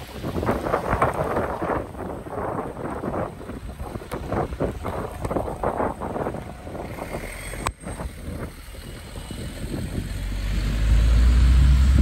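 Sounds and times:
low rumble: 0.0s - 12.0s
road traffic: 0.0s - 12.0s
wind gusting on microphone: 0.0s - 12.0s.

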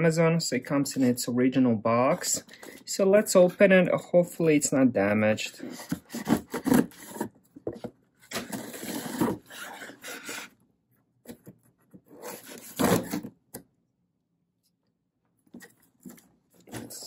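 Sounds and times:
tape tearing against cardboard: 8.3s - 10.5s, 12.1s - 13.3s.

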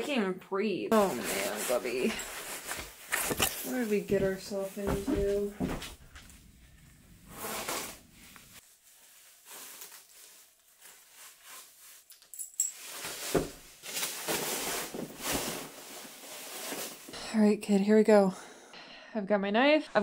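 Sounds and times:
fabric rustling: 0.9s - 17.1s
small metallic jingles: 12.1s - 13.0s.

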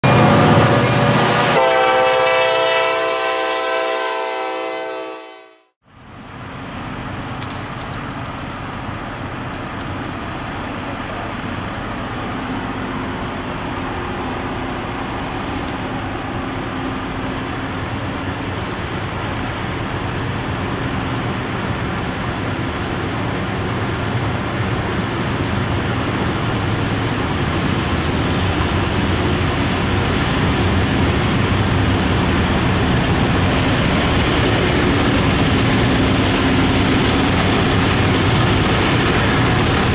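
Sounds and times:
locomotive air horn chord: 0.1s - 5.7s.

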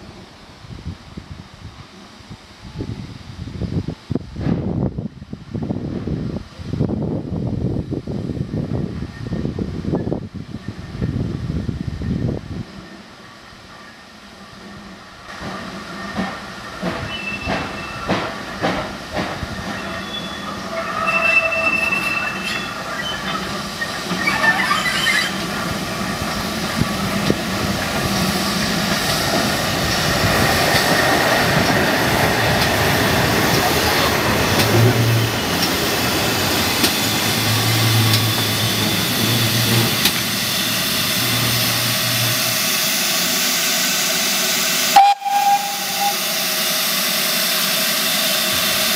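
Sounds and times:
steam locomotive running: 5.8s - 48.9s
train wheels knocking: 15.4s - 20.1s, 26.2s - 42.0s
thin squeal: 19.8s - 25.4s, 45.0s - 46.6s.

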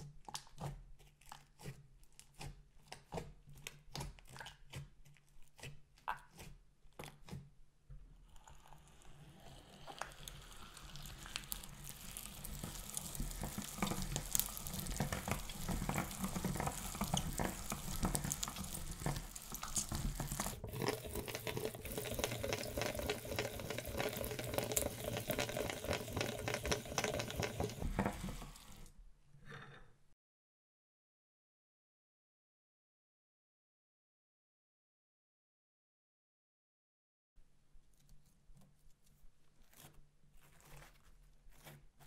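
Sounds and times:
slime squelching through grinder: 0.0s - 7.5s, 8.2s - 28.9s, 38.7s - 42.0s.

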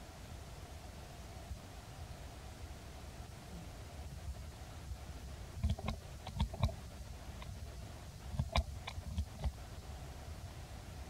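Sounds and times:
monkey grooming clicks and smacks: 5.6s - 6.8s, 7.4s - 7.6s, 8.3s - 9.6s.

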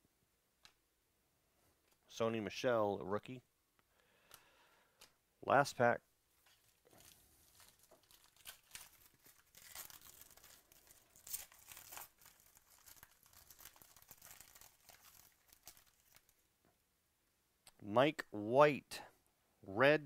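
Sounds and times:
foil wrapper tearing and crinkling: 6.6s - 16.4s.

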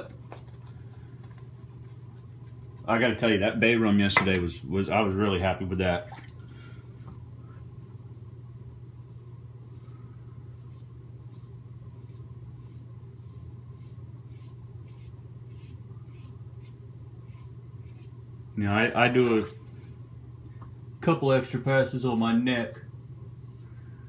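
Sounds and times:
steady low hum: 0.0s - 24.0s
razor scraping stubble: 9.0s - 18.2s, 22.6s - 23.9s.

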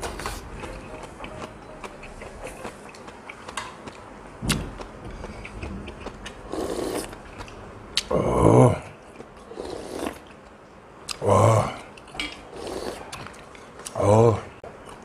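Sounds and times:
noisy eating: 0.0s - 15.0s
chewing with wet mouth clicks: 0.6s - 8.1s.

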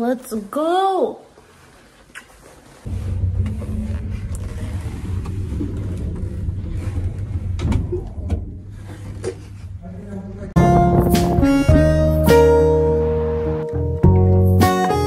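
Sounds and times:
lift car rumble and hum: 2.9s - 14.4s.

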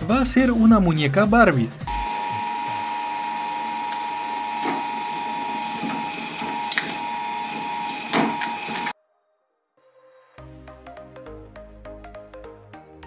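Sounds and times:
shredder motor whine: 1.9s - 9.0s
plastic doll cracking in shredder: 3.2s - 8.9s.

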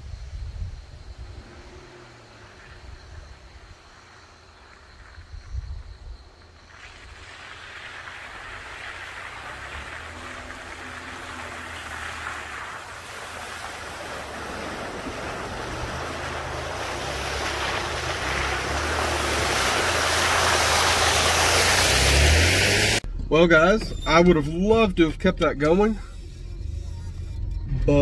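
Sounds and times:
tires splashing through mud: 0.9s - 28.0s
truck engine running low: 6.4s - 28.0s.

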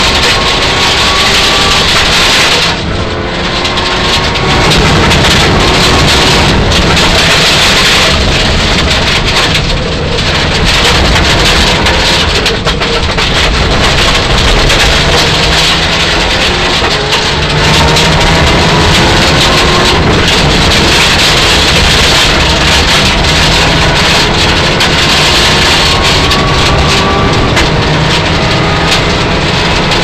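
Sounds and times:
gravel rattling against car body: 0.0s - 30.0s
rally car engine revving: 0.0s - 30.0s.

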